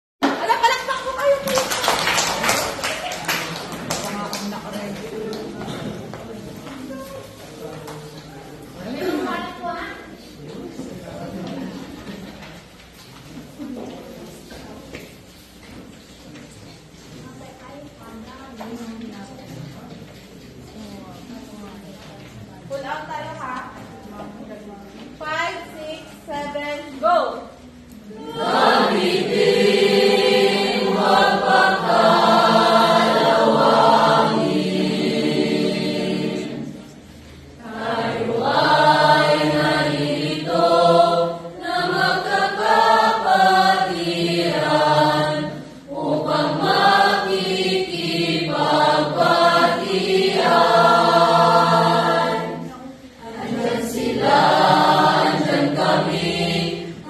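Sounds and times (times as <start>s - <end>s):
choir singing: 28.2s - 37.0s, 37.6s - 57.0s.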